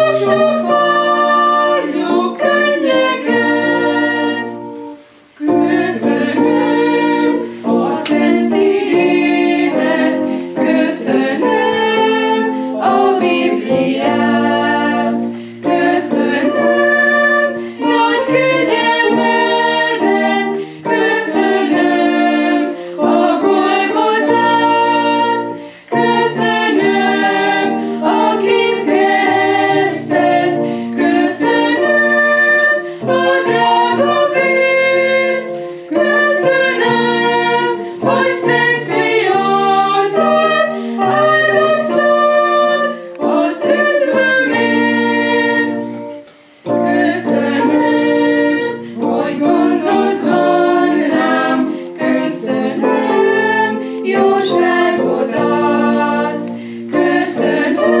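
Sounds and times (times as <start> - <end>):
women's vocal group singing: 0.0 - 58.0.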